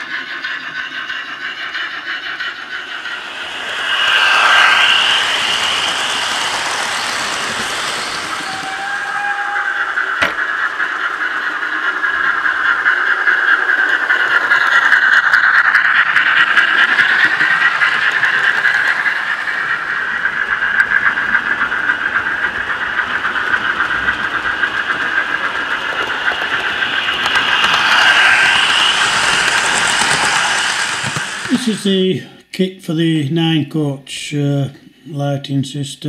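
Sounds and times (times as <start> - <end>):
model train motor whine: 0.0 - 31.8
wheels clicking over track: 4.2 - 31.8.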